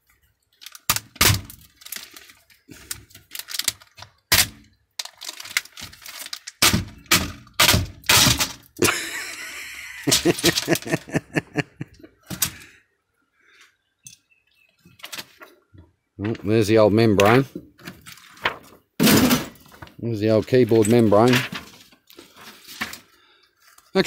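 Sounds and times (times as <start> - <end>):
plastic cracking and snapping: 0.5 - 8.8.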